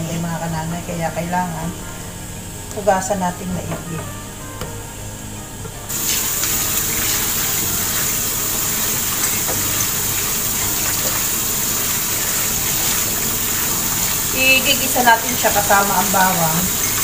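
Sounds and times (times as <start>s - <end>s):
tap water running into colander: 5.9s - 17.0s.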